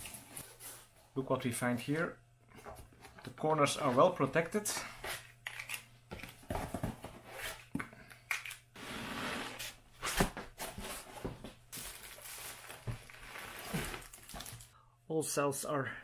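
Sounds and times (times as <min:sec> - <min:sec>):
foam scraping out of a cardboard box: 0:08.8 - 0:09.8.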